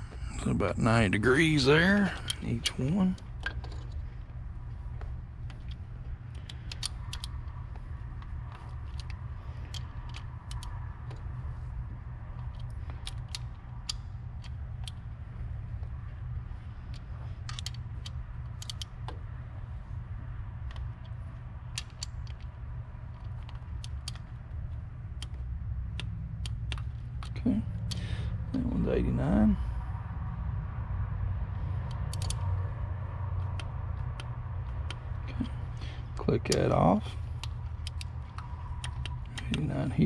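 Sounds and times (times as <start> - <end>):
steady low hum: 0.0 - 40.0
ratchet wrench clicking: 6.3 - 7.6, 31.8 - 32.4.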